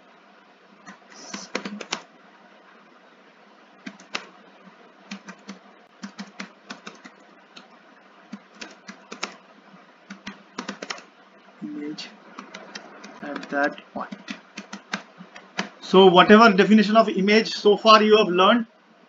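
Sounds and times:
keyboard keystroke clicks: 0.9s - 2.1s, 3.8s - 4.3s, 5.1s - 7.7s, 8.3s - 9.4s, 10.1s - 11.1s, 12.4s - 15.7s.

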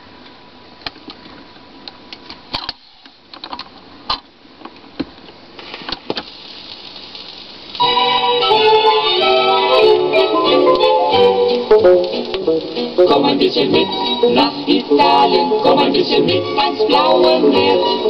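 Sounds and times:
record surface hiss and crackle: 0.0s - 18.0s
music: 7.8s - 18.0s.

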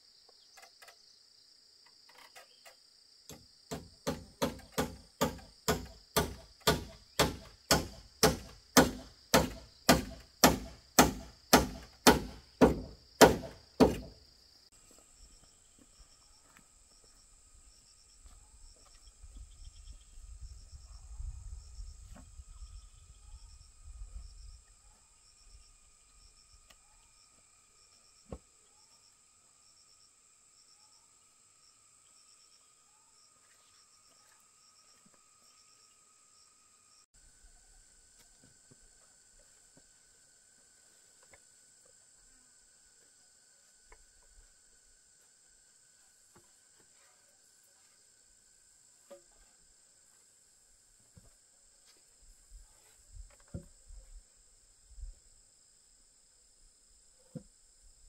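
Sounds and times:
insects chirping: 0.0s - 58.0s
hammer striking wood: 3.3s - 14.2s
thump: 8.4s - 14.2s.

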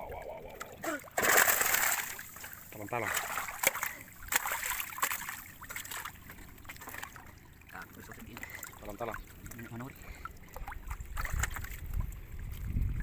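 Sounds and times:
lapping water: 0.0s - 13.0s
sharp water splashes: 0.5s - 12.4s.

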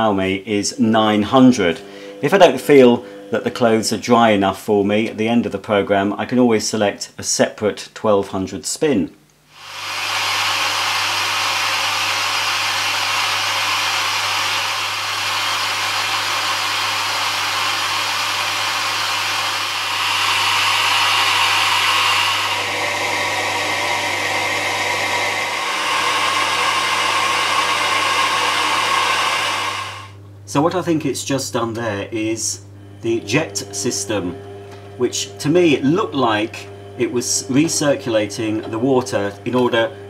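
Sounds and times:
washing machine water rushing: 9.6s - 30.2s.

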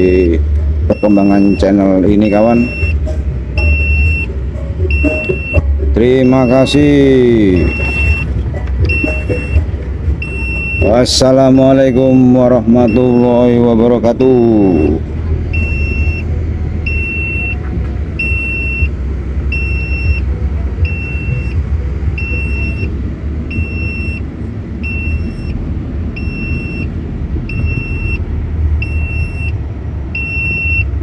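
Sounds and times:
diesel engine running: 0.0s - 31.0s
high-pitched warning buzzer beeping: 3.6s - 6.9s, 7.5s - 13.6s, 14.2s - 17.6s, 19.5s - 21.6s, 22.2s - 22.9s.

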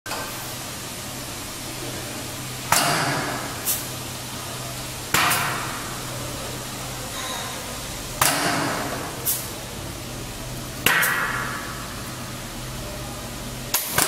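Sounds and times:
air compressor humming: 0.1s - 14.0s
pneumatic cylinder air hissing: 2.8s - 4.0s, 8.3s - 9.6s.

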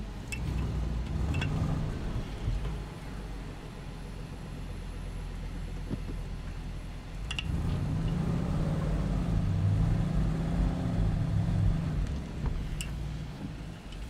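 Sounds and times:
car engine working hard: 0.0s - 14.0s.

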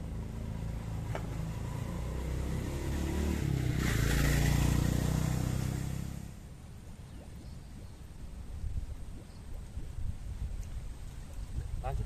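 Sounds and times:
vehicle engine passing by: 0.0s - 6.5s.

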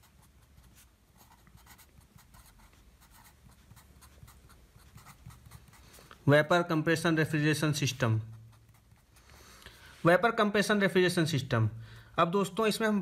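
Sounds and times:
felt-tip pen scratching on paper: 0.0s - 6.2s, 8.2s - 9.4s.

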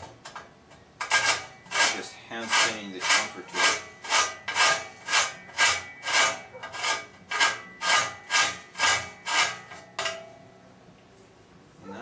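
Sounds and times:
hand-sanding metal: 1.0s - 9.8s.

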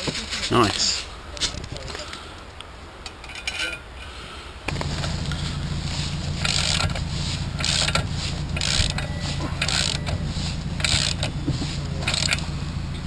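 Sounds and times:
steady low hum: 4.7s - 13.0s
socket ratchet rasping: 6.4s - 10.2s, 10.8s - 11.4s, 12.0s - 12.5s.

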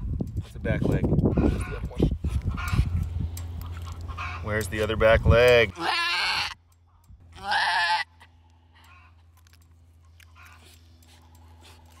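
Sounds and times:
goat bleating in distress: 5.7s - 6.6s, 7.3s - 8.3s.

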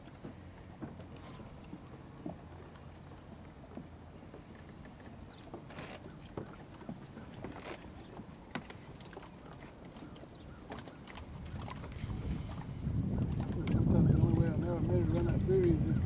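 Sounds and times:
water lapping: 0.0s - 16.0s
wind gusts on microphone: 11.2s - 16.0s.

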